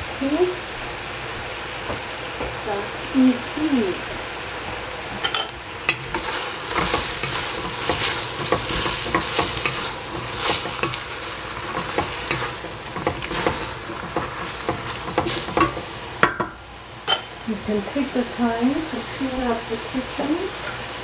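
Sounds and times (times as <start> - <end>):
frying sizzle: 0.0 - 21.0
wooden spatula scraping pot: 5.9 - 16.3.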